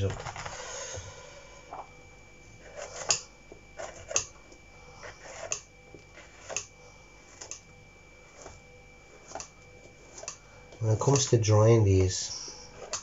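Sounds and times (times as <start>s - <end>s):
knife scraping mushroom: 2.6s - 7.6s, 8.2s - 10.4s, 12.3s - 13.0s.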